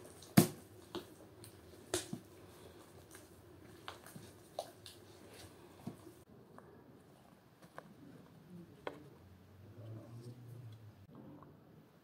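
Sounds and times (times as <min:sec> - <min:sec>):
hands kneading sticky dough: 0:00.0 - 0:06.3.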